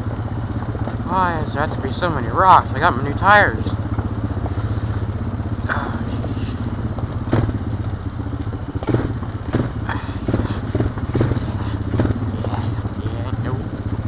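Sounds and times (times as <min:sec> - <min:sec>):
atv engine running: 0:00.0 - 0:14.0
knocks and clatters over rocks: 0:06.1 - 0:12.8.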